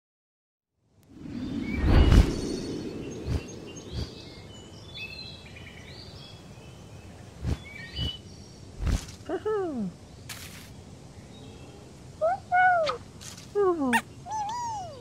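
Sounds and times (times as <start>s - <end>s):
whoosh: 1.1s - 4.7s
bird chirps: 1.2s - 8.7s, 13.9s - 15.0s.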